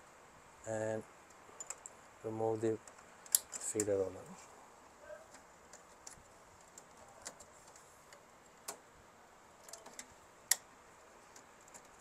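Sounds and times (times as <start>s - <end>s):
faint plastic clicks: 2.8s - 4.5s, 5.3s - 8.9s, 9.6s - 12.0s.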